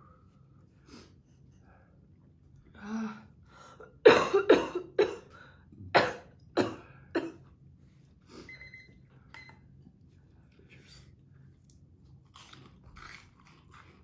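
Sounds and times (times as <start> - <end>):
person coughing hard: 4.0 - 5.3, 5.9 - 7.4.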